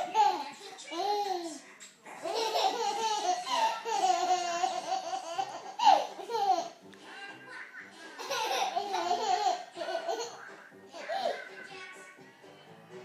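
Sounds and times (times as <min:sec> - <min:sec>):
toddler laughing: 0:00.0 - 0:01.6, 0:02.2 - 0:06.8, 0:08.2 - 0:11.4.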